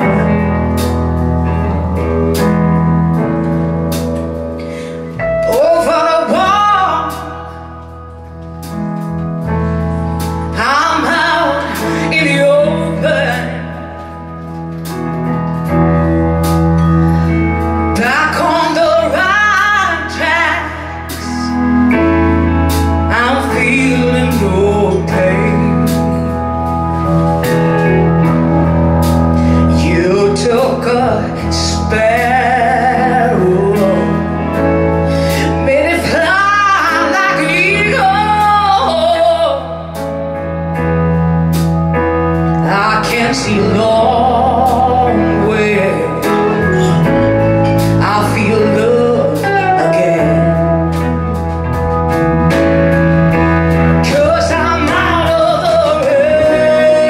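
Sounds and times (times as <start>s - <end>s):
band playing slow ballad: 0.0s - 57.0s
woman singing: 4.8s - 7.8s, 10.4s - 14.2s, 17.2s - 26.4s, 29.6s - 40.1s, 42.6s - 51.5s, 53.8s - 57.0s.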